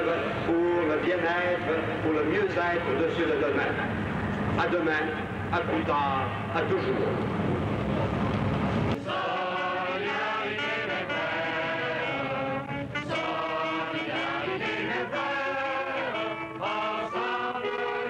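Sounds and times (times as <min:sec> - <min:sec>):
group singing slow melody: 0:09.0 - 0:18.0.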